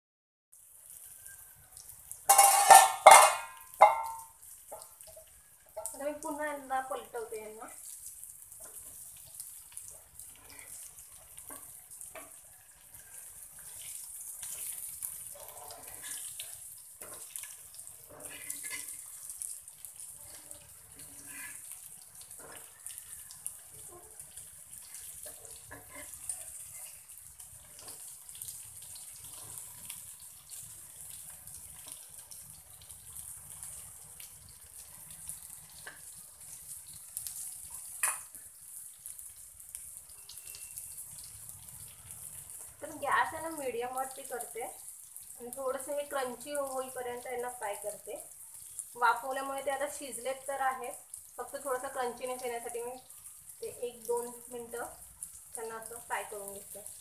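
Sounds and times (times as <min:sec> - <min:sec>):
fish sizzling in oil: 0:00.6 - 0:57.0
steel spatula scraping pan: 0:02.3 - 0:04.2, 0:14.4 - 0:19.1.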